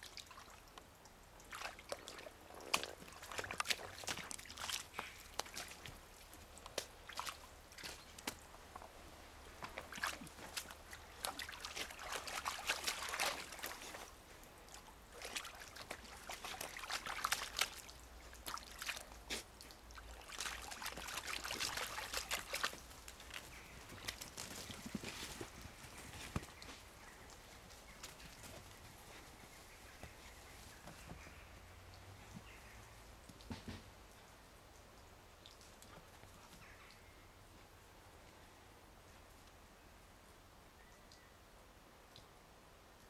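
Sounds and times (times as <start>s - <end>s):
puppy lapping water: 1.4s - 8.2s, 9.6s - 22.9s.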